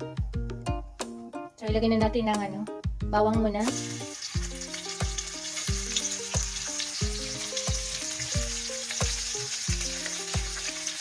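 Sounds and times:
background music with steady beat: 0.0 - 11.0
garlic sizzling in oil: 3.6 - 11.0.

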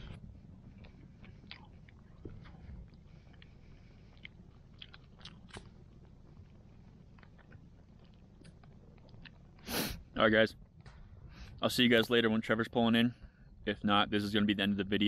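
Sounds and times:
faint chewing: 0.0 - 9.7.

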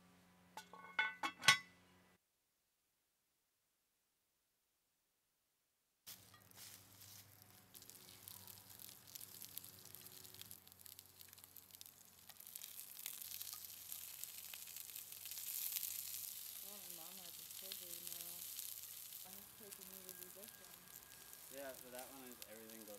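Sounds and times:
vegetables sizzling in oil: 6.1 - 22.9.

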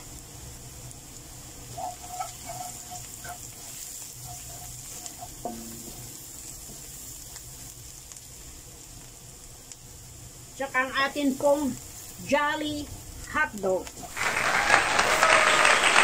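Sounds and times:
onion and garlic sizzling in oil: 0.0 - 15.9
wooden spatula scraping wok: 1.6 - 7.7.

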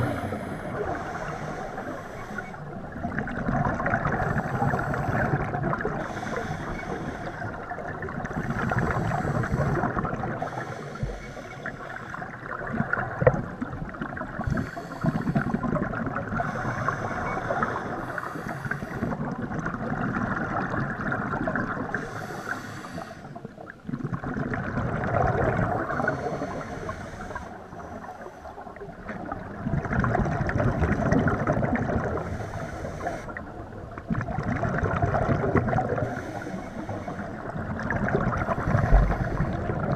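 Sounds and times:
regulator inhalation hiss: 14.5 - 15.6, 22.0 - 23.4.

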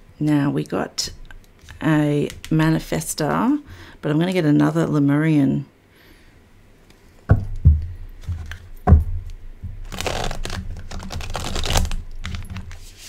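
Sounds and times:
cards shuffling and rustling: 9.8 - 13.0.

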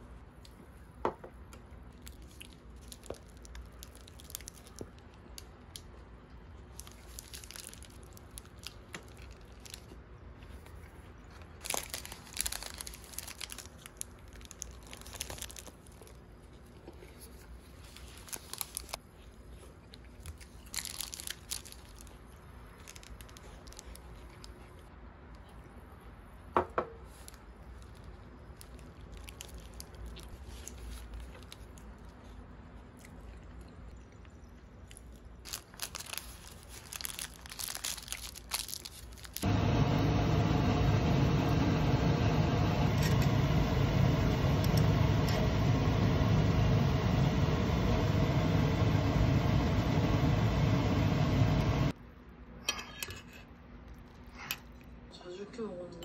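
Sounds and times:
paper wrapper crinkling: 1.9 - 5.4, 6.7 - 24.6, 27.1 - 31.9, 35.5 - 39.5.

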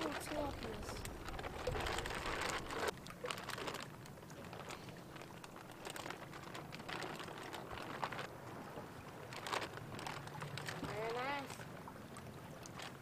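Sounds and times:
plastic bag crinkling: 0.0 - 8.3, 9.2 - 11.1.

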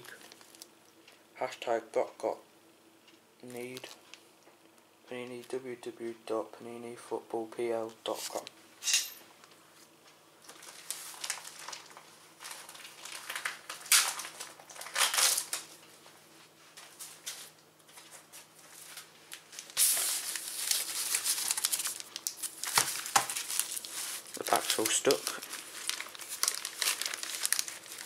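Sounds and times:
foil packets crinkling: 0.0 - 0.7, 3.5 - 4.2, 10.4 - 15.9, 16.8 - 28.0
plastic packaging crinkling: 0.0 - 0.8, 3.5 - 4.2, 10.4 - 15.9, 16.8 - 28.0.

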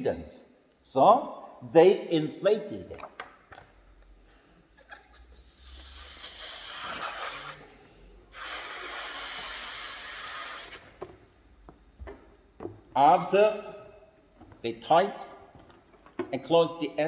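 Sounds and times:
man blowing up a balloon: 4.8 - 11.1.

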